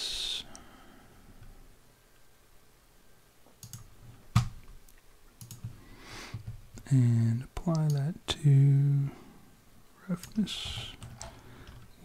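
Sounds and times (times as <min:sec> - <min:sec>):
computer mouse clicks: 0:03.6 - 0:06.8, 0:07.6 - 0:08.0, 0:10.2 - 0:11.9.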